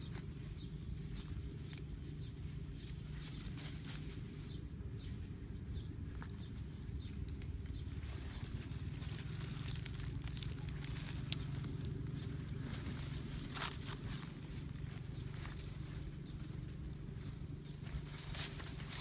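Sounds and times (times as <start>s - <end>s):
stick ticking and rustling in grass: 0.0s - 4.6s, 6.0s - 19.0s
low outdoor rumble: 0.0s - 19.0s.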